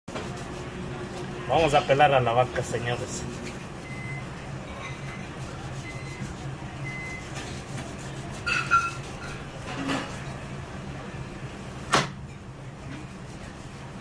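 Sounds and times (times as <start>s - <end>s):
low machine hum: 0.1s - 14.0s
high squeak: 8.4s - 9.4s.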